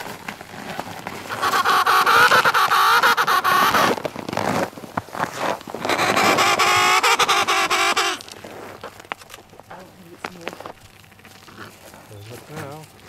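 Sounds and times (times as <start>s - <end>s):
penguins calling: 1.2s - 4.1s, 5.4s - 9.0s.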